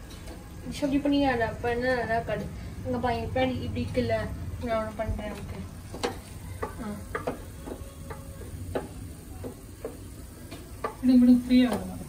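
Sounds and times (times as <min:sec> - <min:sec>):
low steady background noise: 0:00.0 - 0:12.0
spoon knocking and scraping a pan: 0:04.6 - 0:12.0.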